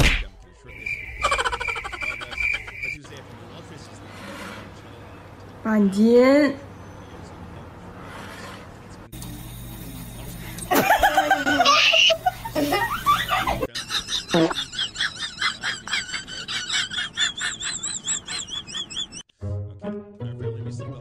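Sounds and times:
high-pitched rhythmic giggling: 0:01.2 - 0:03.0, 0:10.7 - 0:19.3
people laughing and exclaiming: 0:10.7 - 0:19.2.

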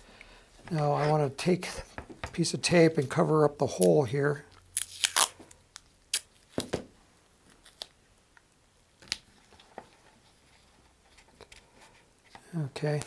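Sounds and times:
tape crackling and snapping: 0:03.7 - 0:10.0.

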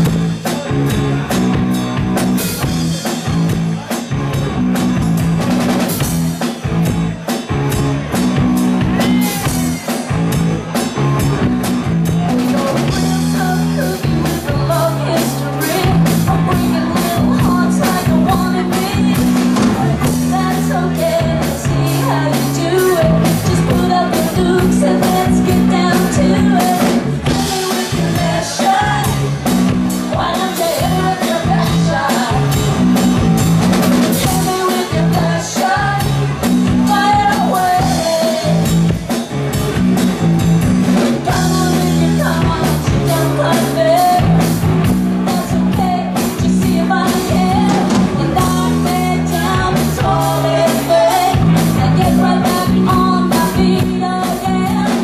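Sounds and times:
drum kit: 0:00.0 - 0:55.0
electric guitars: 0:00.0 - 0:55.0
woman singing into microphone: 0:12.2 - 0:32.7, 0:34.1 - 0:38.7, 0:41.2 - 0:55.0.

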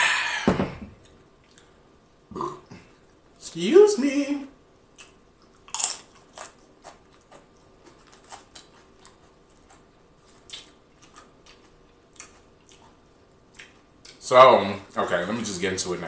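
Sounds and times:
crunching tortilla chip: 0:05.6 - 0:12.4.

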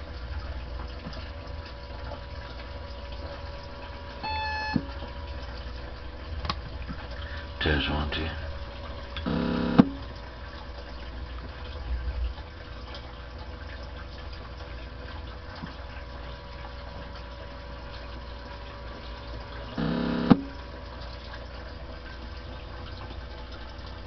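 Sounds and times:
electrical hum: 0:00.0 - 0:24.0
radio static hiss: 0:09.3 - 0:09.9, 0:19.8 - 0:20.4.

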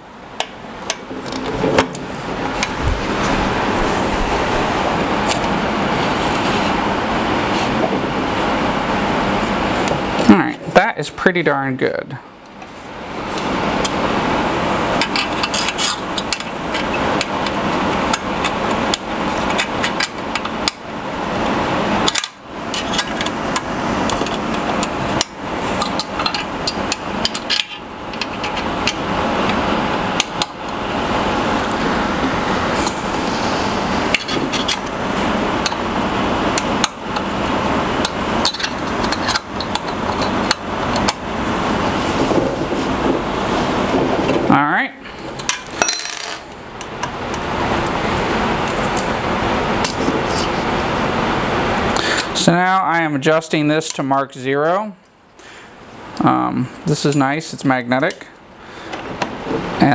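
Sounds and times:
continuous rasping noise: 0:12.4 - 0:20.8, 0:46.7 - 0:54.0.

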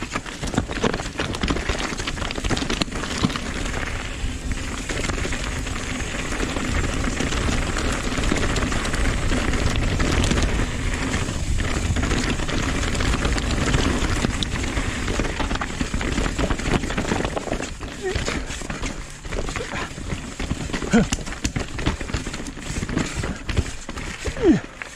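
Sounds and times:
wind rush on microphone: 0:00.0 - 0:24.6
bike clicks and rattles: 0:00.0 - 0:24.9
bike tyres crunching over gravel: 0:00.0 - 0:24.9.

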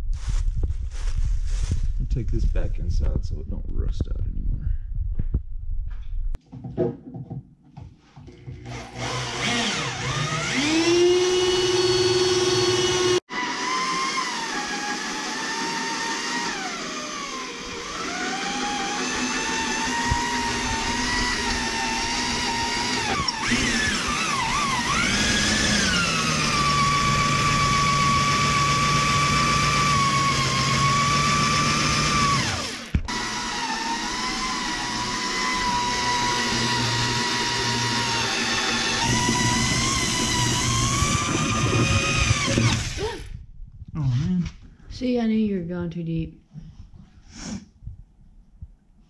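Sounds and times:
electric drill drilling sheet metal: 0:08.4 - 0:43.4.

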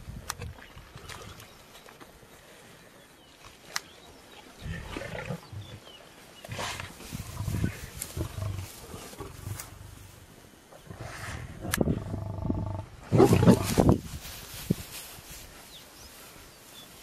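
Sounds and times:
lion growling: 0:10.8 - 0:13.7.

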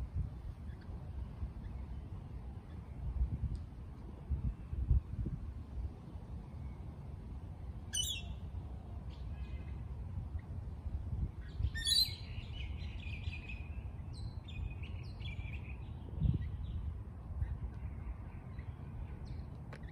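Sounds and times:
steady low rumble: 0:00.0 - 0:19.9.

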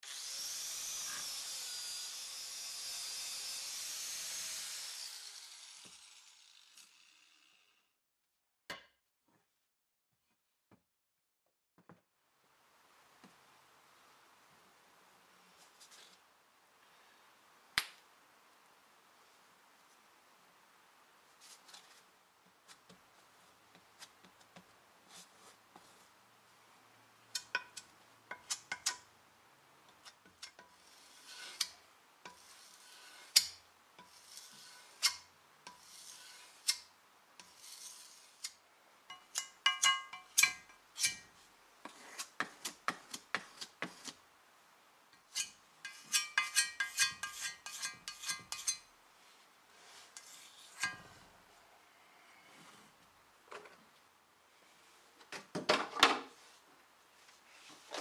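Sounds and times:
putty knife scraping metal plate: 0:27.4 - 0:29.0, 0:29.9 - 0:41.3, 0:45.2 - 0:48.9, 0:50.1 - 0:51.1.

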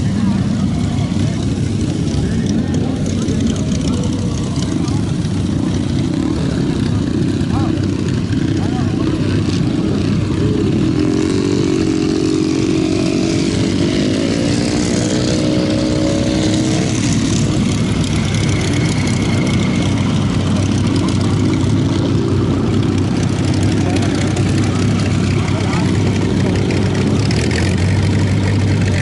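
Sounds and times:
motorcycle engine revving: 0:00.0 - 0:29.0
motorcycle engines rumbling: 0:00.0 - 0:29.0.

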